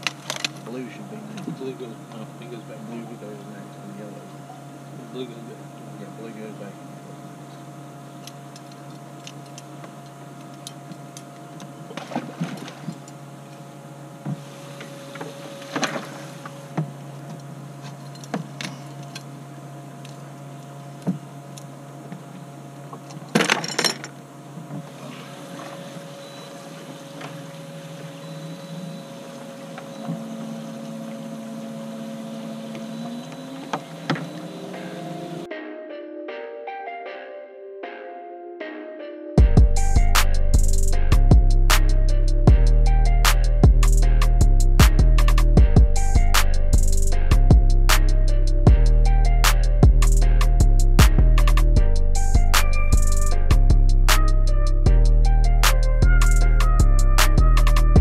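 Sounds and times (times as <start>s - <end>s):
electric boat motor humming: 0.0s - 35.5s, 39.4s - 58.0s
gear knocking and rattling in boat: 22.9s - 35.2s.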